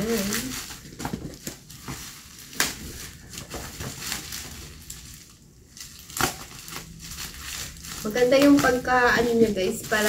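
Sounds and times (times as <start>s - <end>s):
plastic crinkling: 0.0s - 10.0s
scissors snipping plastic: 5.8s - 10.0s.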